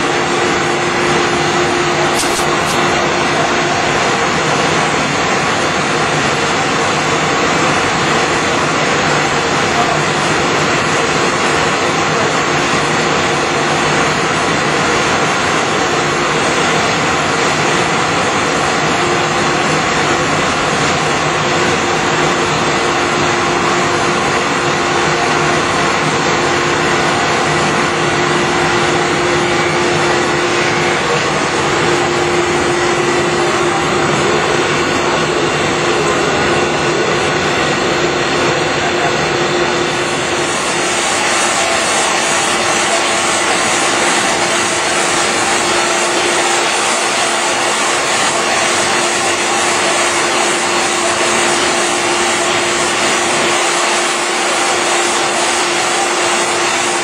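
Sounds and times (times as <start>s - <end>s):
printing machine running: 0.0s - 57.0s.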